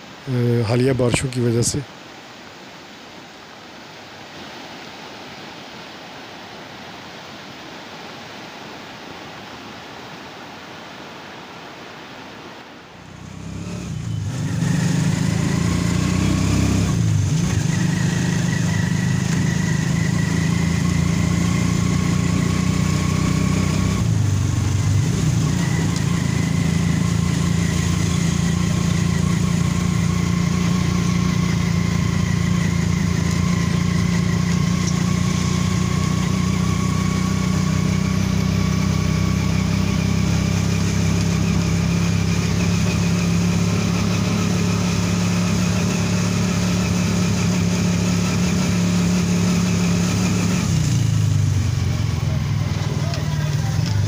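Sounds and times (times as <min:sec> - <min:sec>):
river water rushing: 0:00.0 - 0:54.0
vehicle engine running: 0:13.1 - 0:54.0.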